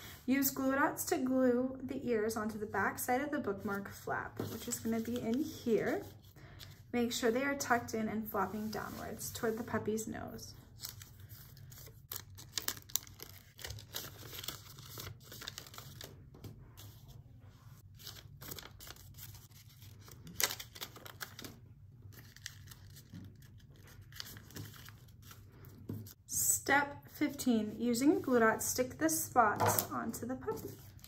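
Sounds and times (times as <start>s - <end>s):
paper rustling and crinkling: 10.6s - 26.2s, 30.5s - 31.0s.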